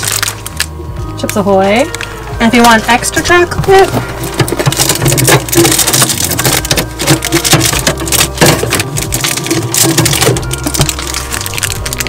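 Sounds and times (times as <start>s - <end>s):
plastic packaging crinkling: 0.0s - 12.0s
items knocking in fridge: 3.0s - 12.0s.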